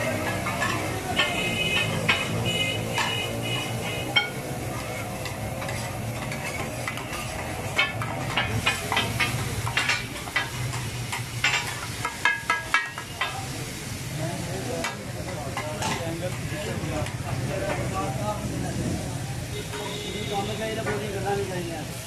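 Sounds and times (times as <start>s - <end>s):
metal spatula scraping griddle: 0.0s - 12.0s
spatula clacking on griddle: 0.0s - 13.8s, 14.7s - 17.9s
meat sizzling in oil: 0.0s - 22.0s.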